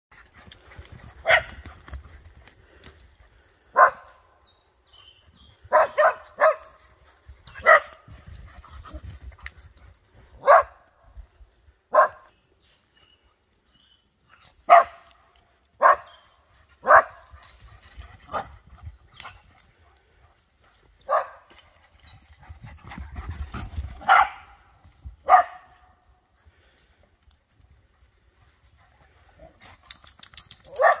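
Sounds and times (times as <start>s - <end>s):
dog barking: 1.2s - 1.6s, 3.8s - 4.1s, 5.7s - 6.8s, 7.6s - 8.0s, 10.4s - 10.8s, 11.9s - 12.3s, 14.7s - 15.0s, 15.8s - 16.2s, 16.8s - 17.3s, 21.1s - 21.5s, 24.0s - 24.6s, 25.2s - 25.9s, 30.7s - 31.0s.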